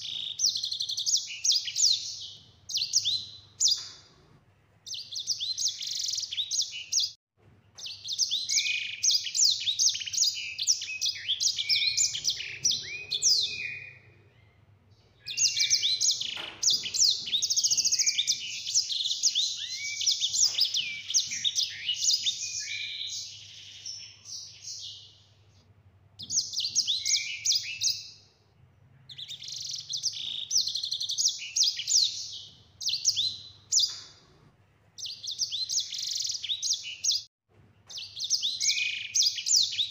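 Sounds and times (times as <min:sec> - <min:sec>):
finch singing trills: 0:07.8 - 0:25.2, 0:26.2 - 0:28.3, 0:29.0 - 0:34.3, 0:37.9 - 0:39.9.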